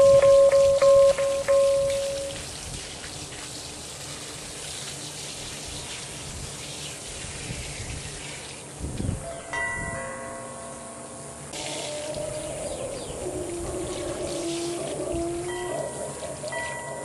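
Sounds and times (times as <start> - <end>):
chime-like melody: 0.0 - 2.4, 9.2 - 11.6, 15.4 - 17.0
water from hose running onto soil: 0.0 - 8.8.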